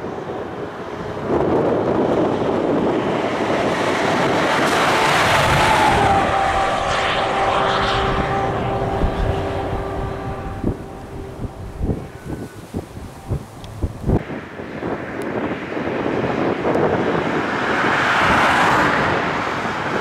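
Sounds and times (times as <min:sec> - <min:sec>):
vehicle passing: 0:03.0 - 0:14.2.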